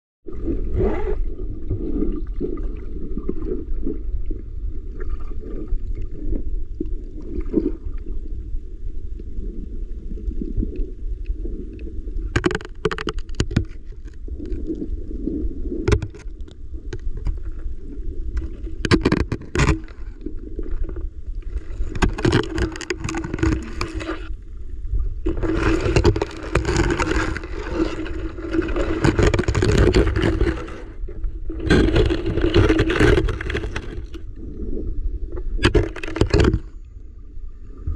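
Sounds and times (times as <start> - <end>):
low rumble of moving water: 0.2 - 37.9
sharp clicks and knocks: 12.4 - 13.8, 18.8 - 20.0, 22.0 - 24.0, 31.6 - 34.2, 35.6 - 36.7
low hum: 13.8 - 37.9.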